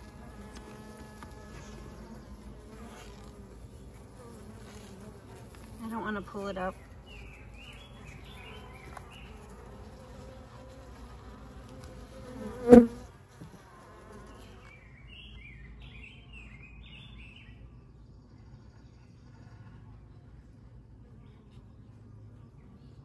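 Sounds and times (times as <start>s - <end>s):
bees buzzing: 0.0s - 14.8s.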